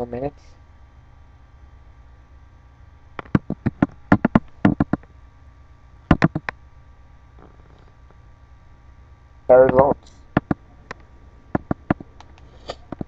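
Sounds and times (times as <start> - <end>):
sharp taps: 3.2 - 5.0, 6.1 - 6.6, 9.7 - 11.0, 11.6 - 13.0.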